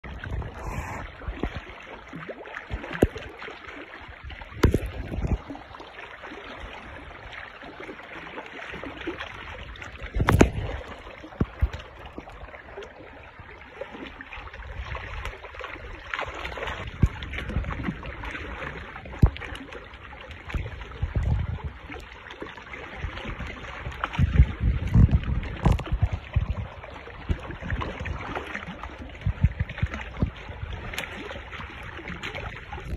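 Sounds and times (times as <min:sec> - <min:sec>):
wind on microphone: 0:00.0 - 0:01.8, 0:04.1 - 0:05.8, 0:09.4 - 0:12.6, 0:14.5 - 0:22.1, 0:22.8 - 0:32.9
small waves lapping against rocks: 0:00.0 - 0:32.9.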